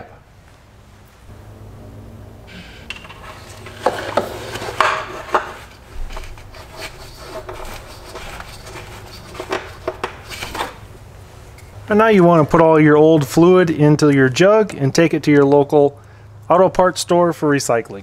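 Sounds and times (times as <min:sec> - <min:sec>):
plastic parts knocking and clicking: 0:09.3 - 0:10.7.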